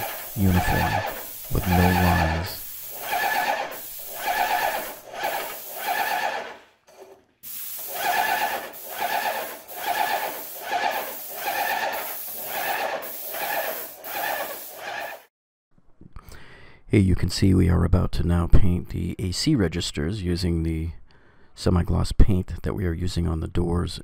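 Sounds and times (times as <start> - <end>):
paint sprayer pump pulsing: 0.0 - 15.3.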